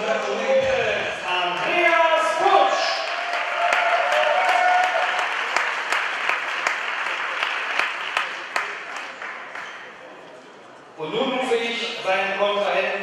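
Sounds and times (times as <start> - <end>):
crowd applauding: 1.5 - 9.9.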